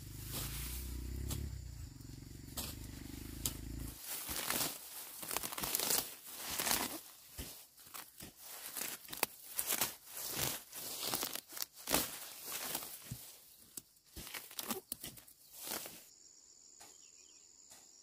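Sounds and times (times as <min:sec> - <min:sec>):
leaves rustling: 0:00.0 - 0:16.1
roots tearing out of soil: 0:02.6 - 0:16.1.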